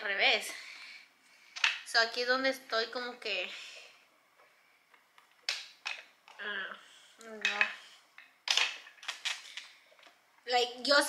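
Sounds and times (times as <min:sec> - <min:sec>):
plastic and metal parts clacking: 0:07.4 - 0:10.2.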